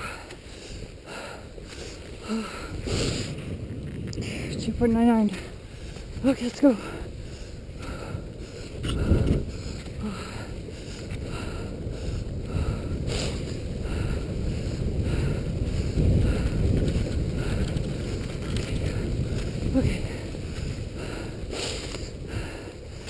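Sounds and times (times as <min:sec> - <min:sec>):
wind rushing over microphone: 0:00.0 - 0:23.0
skis swishing on snow: 0:00.4 - 0:02.2, 0:14.6 - 0:23.0.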